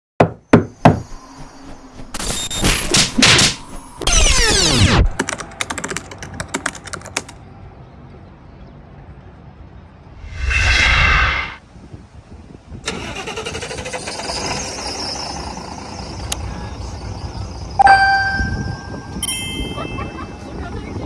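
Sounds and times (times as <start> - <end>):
keyboard typing clicks: 5.1 - 7.4
falling swoosh: 10.2 - 11.6
noisy whooshes: 10.2 - 11.6.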